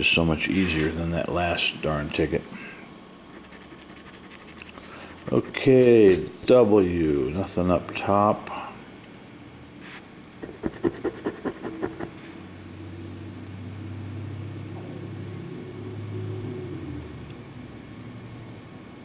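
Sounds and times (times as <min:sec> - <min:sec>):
coin scratching lottery ticket: 0:03.3 - 0:06.3, 0:09.8 - 0:12.2.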